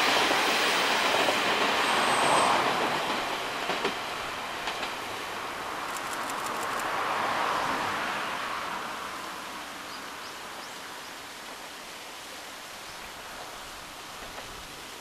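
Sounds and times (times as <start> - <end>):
train running: 0.0 - 8.4
steady outdoor hiss: 0.0 - 15.0
train wheel clicks: 5.8 - 6.9.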